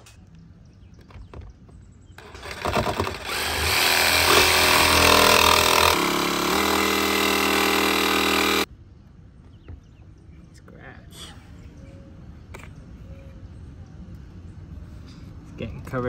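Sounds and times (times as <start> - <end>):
jigsaw cutting sheet steel: 2.2 - 8.7.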